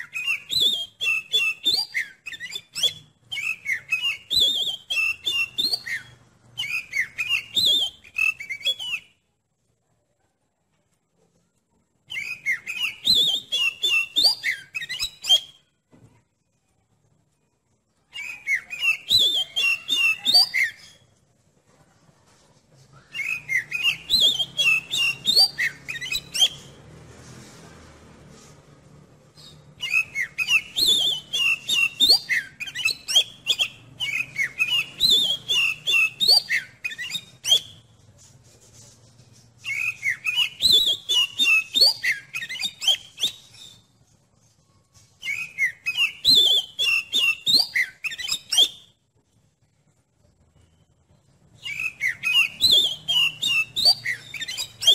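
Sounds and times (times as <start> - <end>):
bird song with clicks and whistles: 0.0 - 9.4, 11.7 - 16.2, 17.6 - 21.2, 22.8 - 26.8, 29.3 - 38.1, 39.6 - 54.9.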